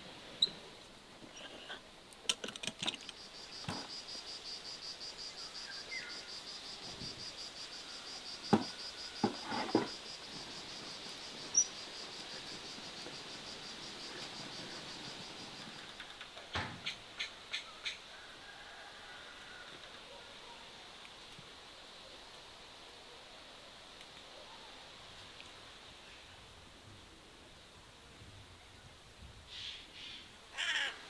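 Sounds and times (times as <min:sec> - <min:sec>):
insect trill: 0:02.3 - 0:20.0, 0:29.6 - 0:31.0.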